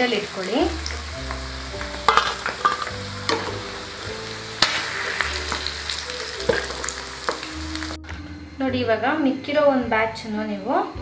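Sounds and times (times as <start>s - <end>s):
food deep-frying in oil: 0.0s - 8.0s.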